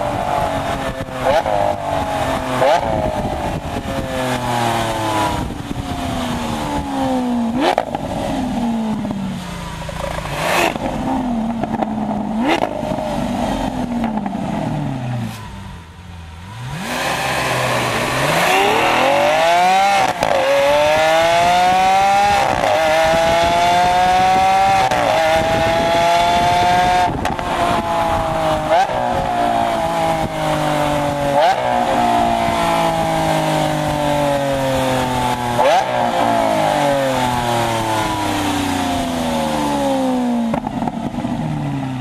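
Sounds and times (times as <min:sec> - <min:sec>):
sports car engine revving: 0:00.0 - 0:42.0
exhaust cracks: 0:06.7 - 0:15.4, 0:16.6 - 0:21.3, 0:26.4 - 0:33.2, 0:33.9 - 0:41.6.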